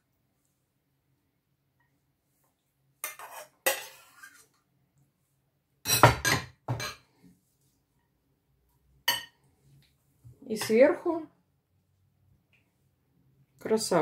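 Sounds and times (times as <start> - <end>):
metal spoon scraping ceramic plate: 3.0 - 4.5.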